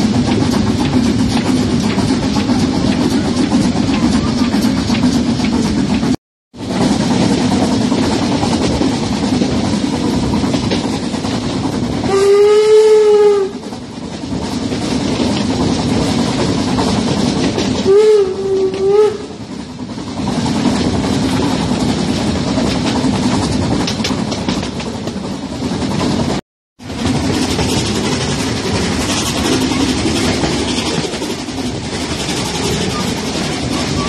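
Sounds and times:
train rumble and track clatter: 0:00.0 - 0:34.0
steam locomotive whistle: 0:12.0 - 0:13.7, 0:17.8 - 0:19.4, 0:32.4 - 0:34.0.

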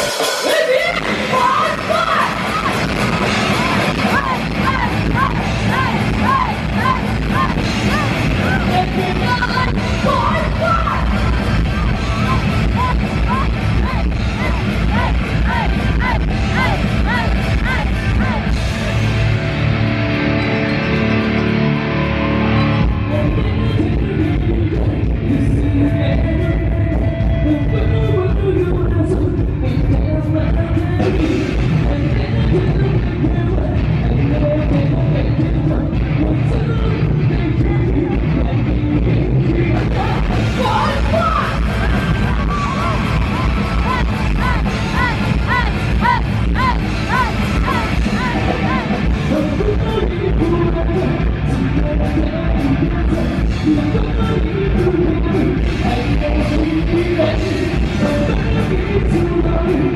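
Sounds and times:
person singing: 0:00.0 - 0:19.0, 0:22.0 - 0:59.9
drums: 0:00.0 - 0:59.9
rock band playing: 0:00.0 - 0:59.9.

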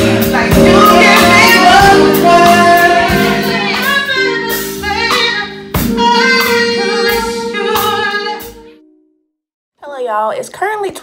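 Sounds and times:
drum and cymbal hits: 0:00.0 - 0:08.0
woman singing into a microphone: 0:00.0 - 0:08.6
held keyboard chords: 0:00.0 - 0:09.2.

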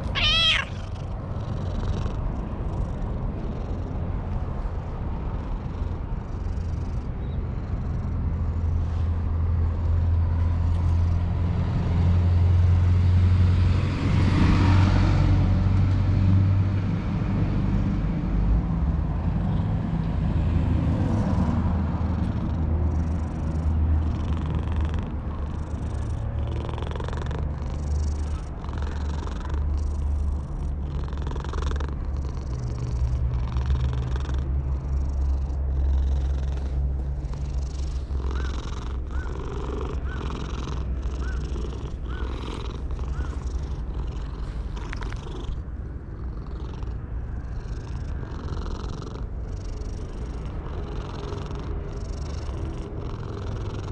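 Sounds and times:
cat chirp-like call: 0:00.0 - 0:00.9
cat purring loudly: 0:00.0 - 0:08.6, 0:20.9 - 0:53.9.

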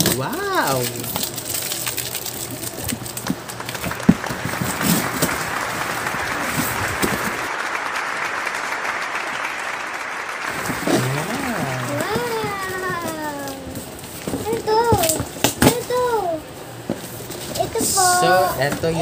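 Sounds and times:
applause: 0:03.5 - 0:12.4.

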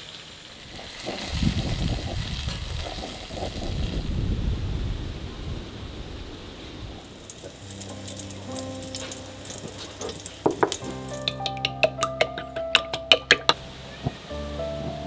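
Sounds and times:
cabbage sizzling in a pan: 0:00.0 - 0:04.1, 0:07.0 - 0:11.4
soft background music: 0:07.2 - 0:15.0.

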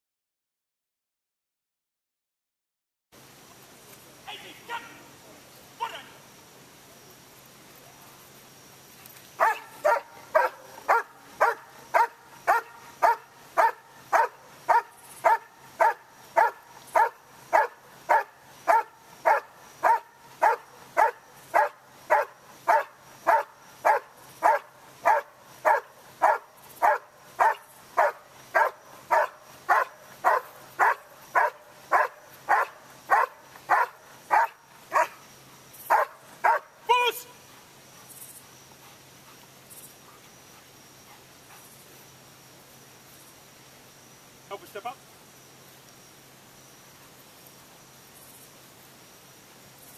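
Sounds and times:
dog barking: 0:09.4 - 0:35.2, 0:35.9 - 0:36.7.

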